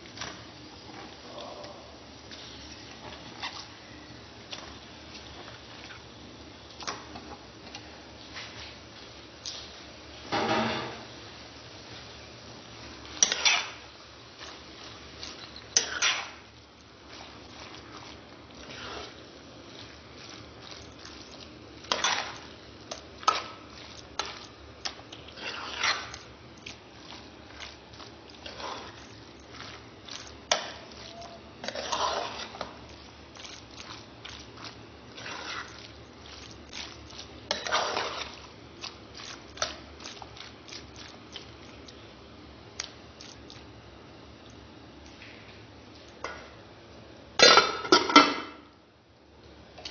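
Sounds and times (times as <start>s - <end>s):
wet squelching of meat: 14.4s - 42.1s, 42.7s - 43.8s
spoon scraping steel pot: 15.2s - 16.4s, 21.9s - 22.5s, 24.2s - 26.2s, 30.2s - 32.7s.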